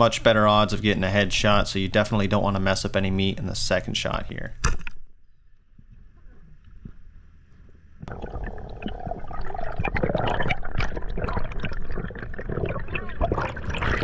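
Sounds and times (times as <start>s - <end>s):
underwater bubbling and sloshing: 4.9s - 14.0s.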